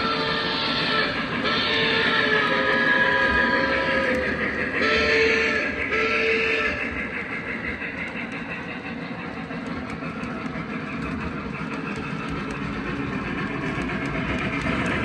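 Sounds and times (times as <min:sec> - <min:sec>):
model train wheels rumbling on rail: 0:00.0 - 0:15.0.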